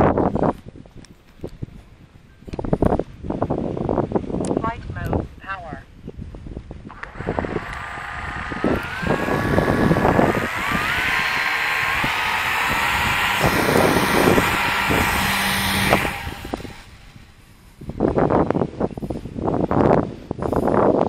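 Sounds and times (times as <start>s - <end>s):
wind buffeting microphone: 0.0s - 21.0s
electric motor and propeller whine: 6.9s - 17.8s.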